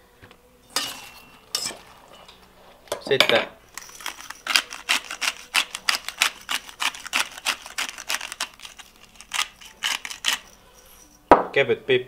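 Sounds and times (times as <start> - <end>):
pepper grinder rasping: 3.7 - 11.2.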